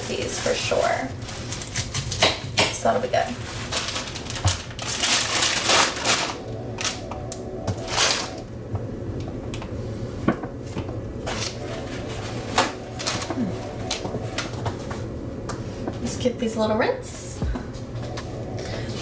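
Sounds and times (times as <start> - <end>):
packaging rustling: 0.0 - 2.2, 3.2 - 8.4, 11.3 - 15.2
steady low hum: 0.0 - 19.0.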